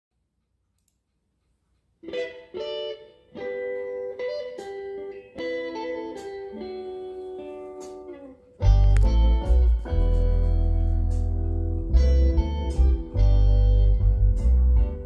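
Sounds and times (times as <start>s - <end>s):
guitar picking ringing notes: 2.0s - 15.0s
music with heavy deep bass: 8.6s - 15.0s.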